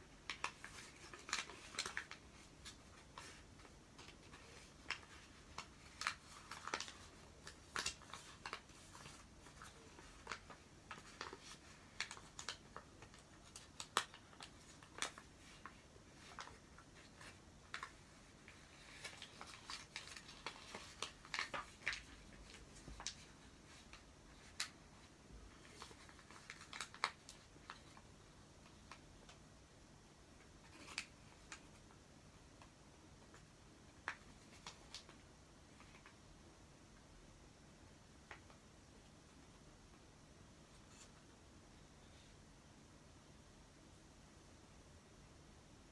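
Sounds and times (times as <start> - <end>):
paper crackling and rustling: 0.0 - 29.4, 30.4 - 36.3.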